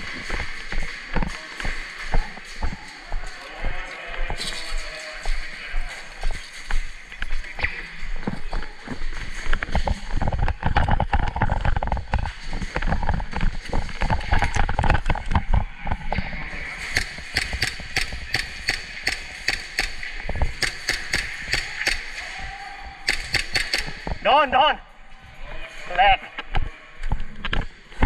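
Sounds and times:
footsteps on concrete: 0.0 - 18.8
airsoft guns firing: 16.7 - 24.2
pellets striking surfaces: 16.7 - 24.3.

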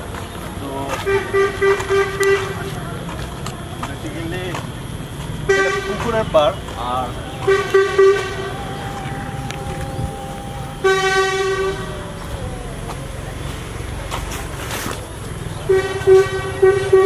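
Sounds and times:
vehicle horns honking: 0.9 - 3.0, 5.4 - 14.0, 15.5 - 17.0
faint held horn tone: 7.2 - 14.0.

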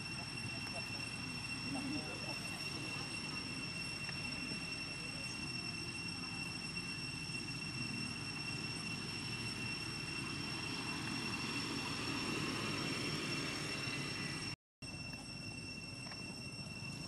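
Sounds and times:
thin high-pitched whine: 0.0 - 17.0.

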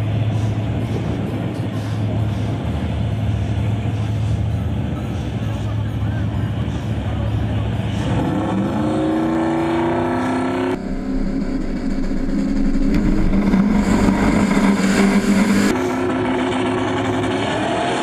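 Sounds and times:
engine running steady low tone: 0.0 - 9.3, 9.9 - 18.0
racing car engines accelerating: 0.0 - 18.0.

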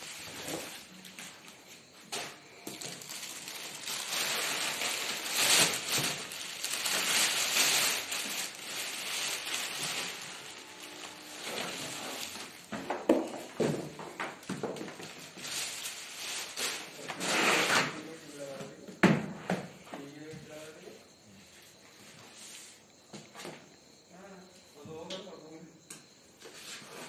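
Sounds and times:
cardboard and plastic rustling: 0.0 - 19.4.

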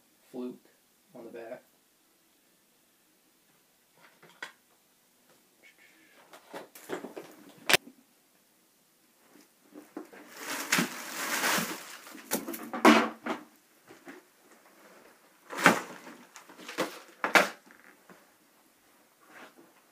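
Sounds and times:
crinkling plastic packets: 10.0 - 12.8, 15.5 - 18.0.

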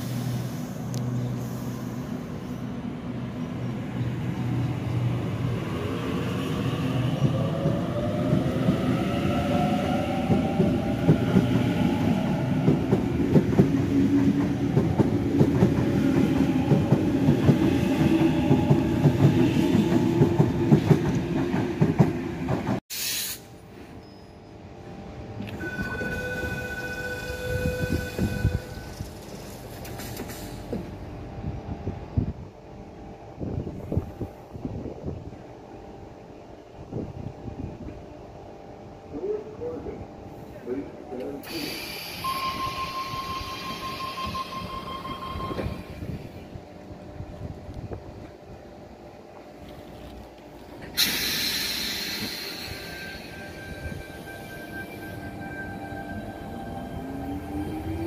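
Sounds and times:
steady train hum: 0.0 - 58.0
high tones from train: 22.9 - 30.8, 41.4 - 46.6, 50.8 - 58.0.

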